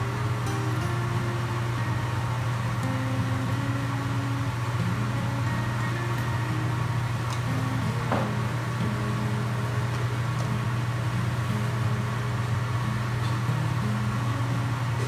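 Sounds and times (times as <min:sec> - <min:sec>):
low machine hum: 0:00.0 - 0:15.0.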